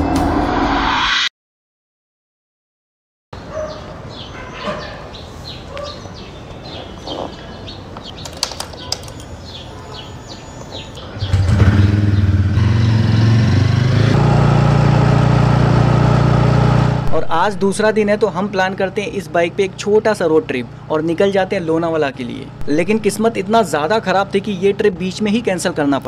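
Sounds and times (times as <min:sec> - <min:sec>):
birds chirping: 0:03.4 - 0:13.6
motorcycle engine idling: 0:11.0 - 0:13.0.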